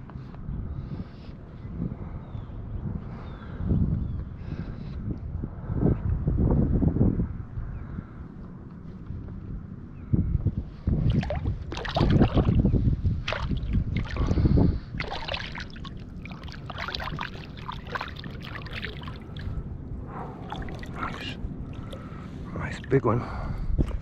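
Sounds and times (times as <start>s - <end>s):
fish thrashing and splashing in water: 11.1s - 19.6s, 20.4s - 22.1s
light water splashes: 11.1s - 23.2s.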